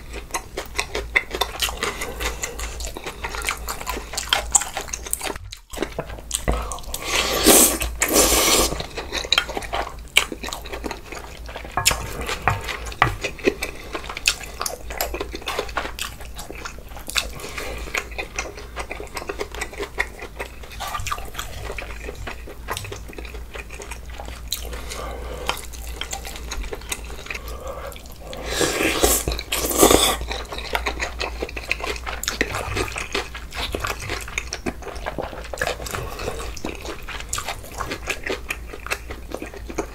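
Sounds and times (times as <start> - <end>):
chewing and smacking: 0.0 - 39.9
slurping: 6.6 - 9.0, 27.2 - 30.4.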